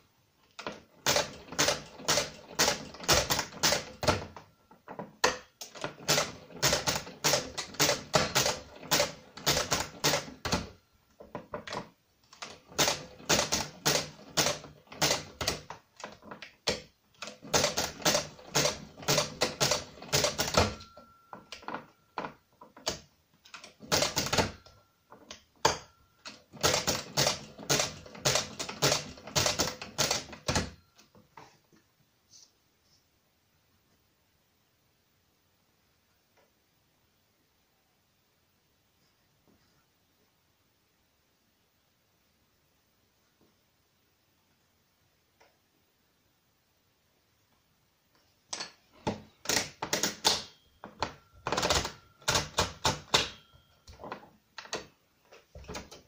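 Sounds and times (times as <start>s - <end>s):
mechanical calculator clicking: 0.6s - 4.4s, 5.2s - 10.7s, 11.6s - 30.8s, 49.3s - 53.5s.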